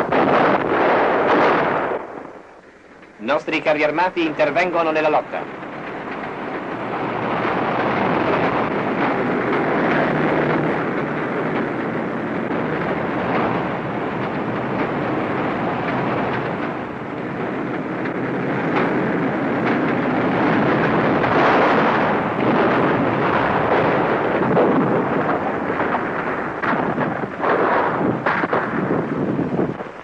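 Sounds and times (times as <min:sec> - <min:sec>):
tracked vehicles running: 0:00.0 - 0:30.0
faint sharp cracks: 0:21.2 - 0:30.0.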